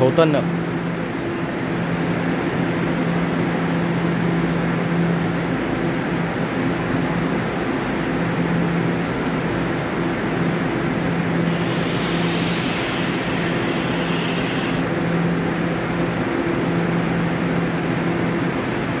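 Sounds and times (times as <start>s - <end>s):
high hiss: 11.4s - 14.9s
steady rushing noise: 11.4s - 14.9s
low hum: 11.5s - 14.9s.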